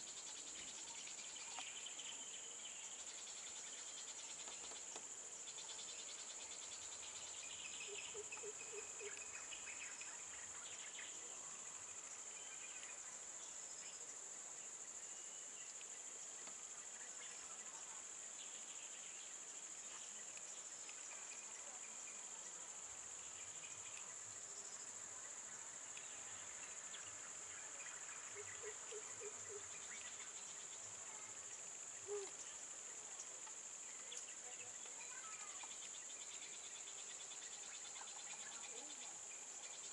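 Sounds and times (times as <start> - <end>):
high-pitched insect chorus: 0.0 - 39.9.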